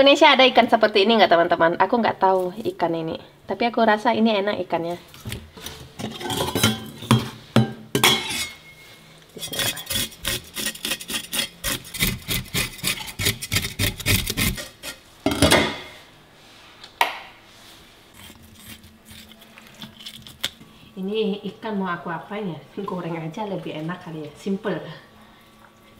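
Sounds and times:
knife scraping fish scales: 9.4 - 15.0, 18.1 - 20.5.

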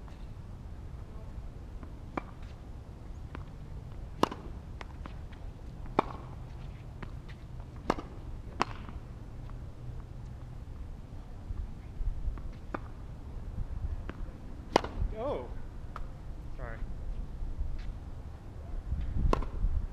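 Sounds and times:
steady low rumble: 0.0 - 19.9
racket hitting tennis ball: 2.1 - 2.5, 3.3 - 9.1, 12.4 - 13.0, 14.0 - 16.1, 19.3 - 19.6.

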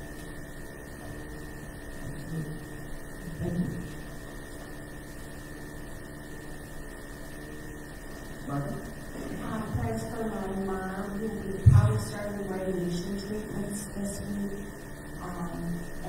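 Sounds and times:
electrical hum with high whine: 0.0 - 16.0.

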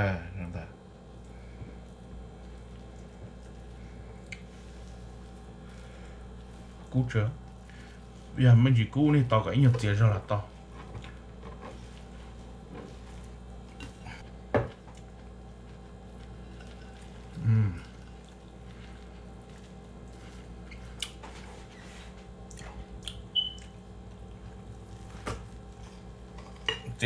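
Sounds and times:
steady low hum: 0.0 - 27.0
man humming: 17.3 - 18.0.

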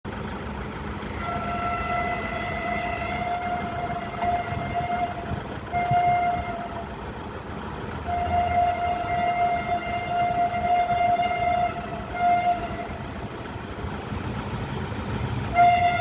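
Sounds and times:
low train rumble: 0.0 - 16.0
locomotive horn blasts: 1.0 - 7.0, 8.0 - 13.3, 15.4 - 16.0.

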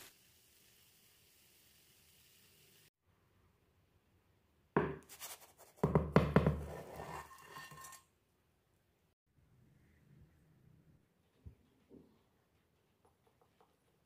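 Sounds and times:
utensil scraping and knocking: 4.8 - 8.0.

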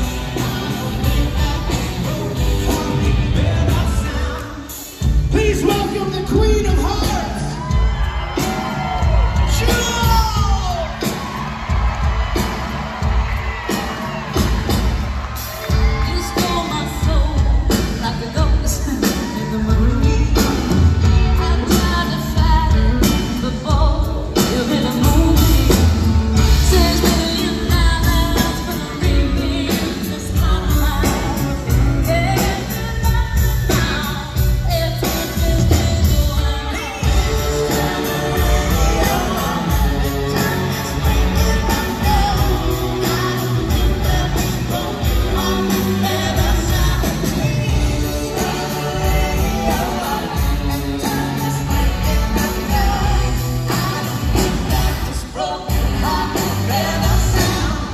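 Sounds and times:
man singing: 0.0 - 7.7, 33.8 - 57.9
live pop-rock band playing: 0.0 - 57.9
woman singing: 15.8 - 57.9.

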